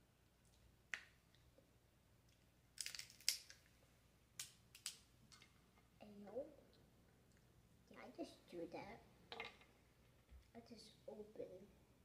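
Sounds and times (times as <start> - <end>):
crab shell cracking: 2.8 - 3.6, 4.4 - 5.0.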